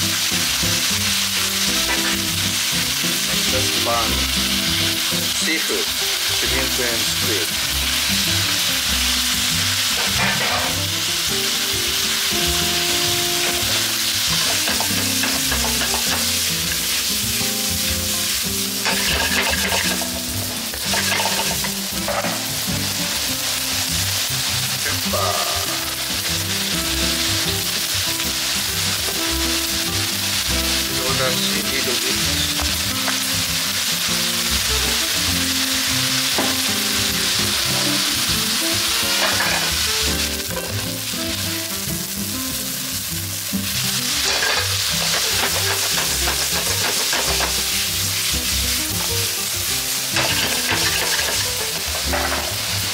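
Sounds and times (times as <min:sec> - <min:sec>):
food sizzling in a wok: 0:00.0 - 0:52.9
chopsticks scraping a pan: 0:01.8 - 0:02.4, 0:09.8 - 0:10.8, 0:12.2 - 0:17.2, 0:17.8 - 0:25.6, 0:38.8 - 0:41.0, 0:44.0 - 0:49.0, 0:49.9 - 0:52.9.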